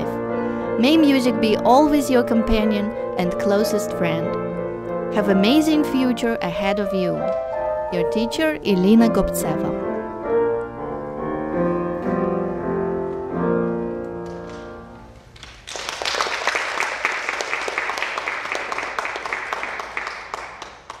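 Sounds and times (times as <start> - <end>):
grand piano chords: 0.0 - 15.4
audience applause: 15.4 - 21.0.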